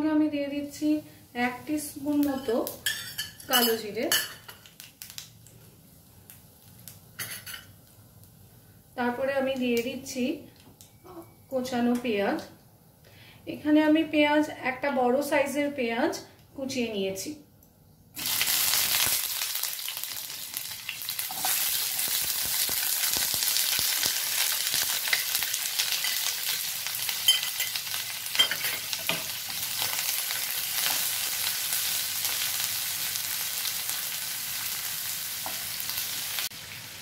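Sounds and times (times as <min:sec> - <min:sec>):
onions sizzling in hot oil: 0:00.4 - 0:10.3, 0:18.2 - 0:37.0.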